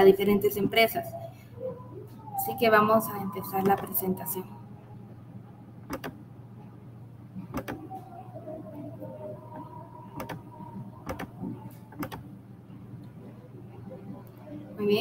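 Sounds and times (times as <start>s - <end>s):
faint low hum: 0.0s - 15.0s
sharp computer clicks: 5.9s - 6.2s, 7.5s - 7.8s, 10.2s - 12.2s.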